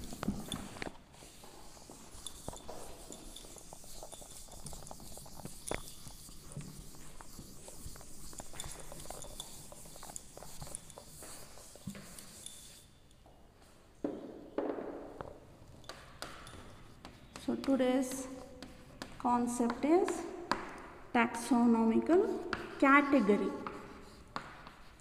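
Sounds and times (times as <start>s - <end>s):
duster scrubbing chalkboard: 0.0s - 12.8s.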